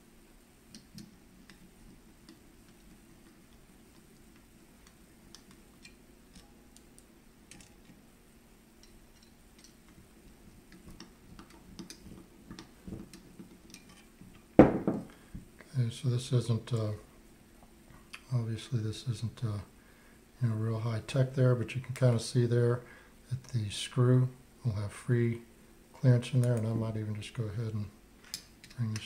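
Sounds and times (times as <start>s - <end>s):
loud knock: 14.6s - 15.1s.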